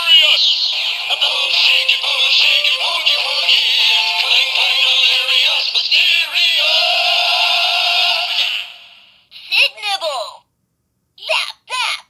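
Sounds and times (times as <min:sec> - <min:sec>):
toy speaker playing synth music: 0:00.2 - 0:05.9.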